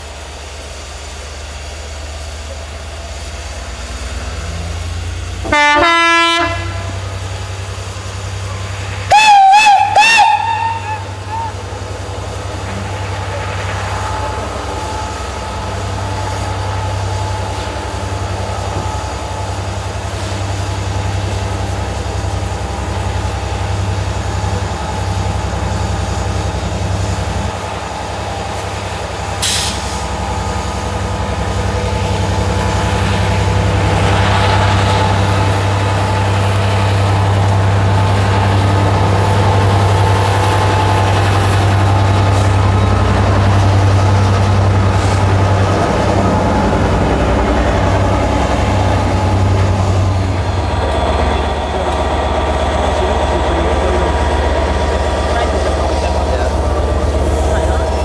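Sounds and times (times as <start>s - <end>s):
diesel locomotive engine drone: 0.0s - 58.0s
brief sharp hiss: 29.4s - 30.1s.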